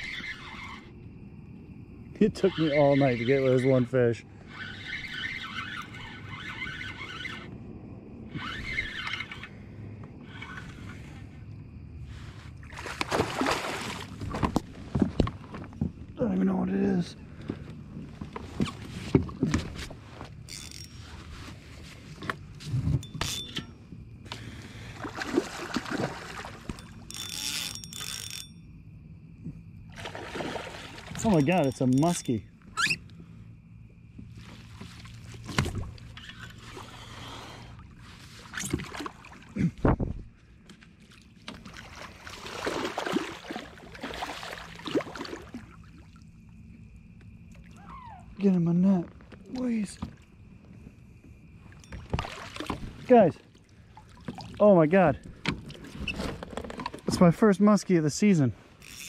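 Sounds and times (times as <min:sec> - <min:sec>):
fish thrashing and water splashing: 0:12.5 - 0:15.8, 0:24.4 - 0:28.2, 0:29.9 - 0:32.2, 0:34.3 - 0:46.7, 0:51.7 - 0:57.0
clicks and knocks of fishing gear: 0:14.2 - 0:16.0, 0:26.6 - 0:28.5, 0:55.2 - 0:57.2.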